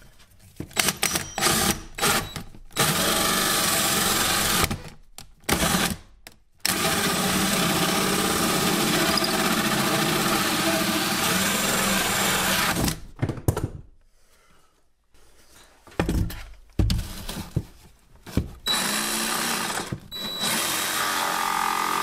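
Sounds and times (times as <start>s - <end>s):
cordless drill cutting wood: 0.8s - 4.8s, 6.7s - 12.8s, 18.7s - 22.0s.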